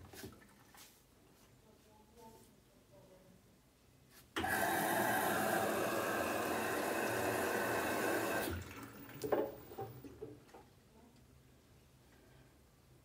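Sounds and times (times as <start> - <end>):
water rushing into washing machine: 4.4 - 10.3.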